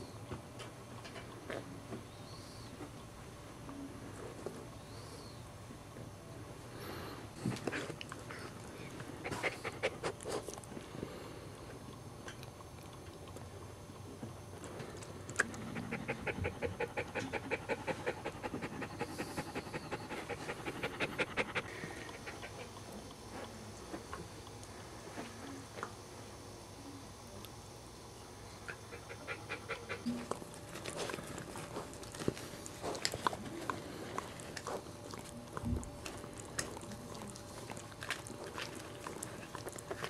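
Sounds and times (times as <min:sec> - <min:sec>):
dog panting: 0:09.2 - 0:10.6, 0:15.5 - 0:23.2, 0:28.6 - 0:40.0.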